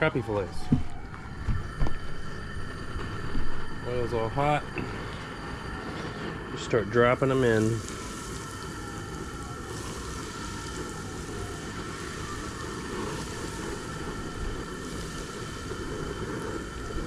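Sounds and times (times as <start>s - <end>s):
gas burner rushing: 0.0s - 17.0s
fish sizzling in hot oil: 6.8s - 17.0s.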